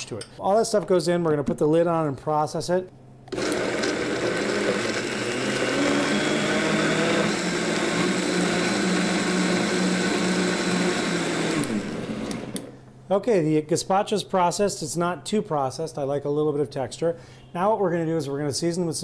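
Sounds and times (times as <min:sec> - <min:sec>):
blender running: 0:03.3 - 0:12.7.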